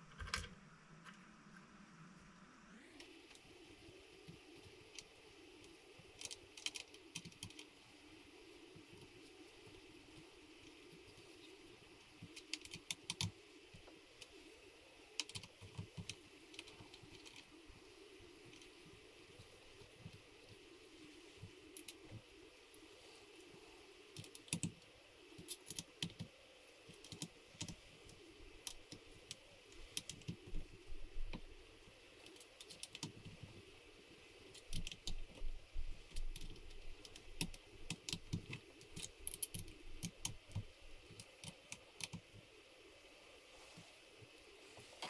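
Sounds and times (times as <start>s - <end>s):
small metal parts clicking: 37.1s - 40.1s.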